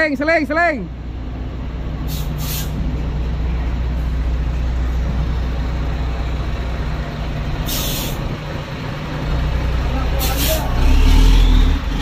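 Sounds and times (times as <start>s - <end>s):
truck diesel engine running: 0.0s - 12.0s
air brakes hissing: 2.0s - 2.9s, 7.6s - 8.4s, 10.1s - 10.8s.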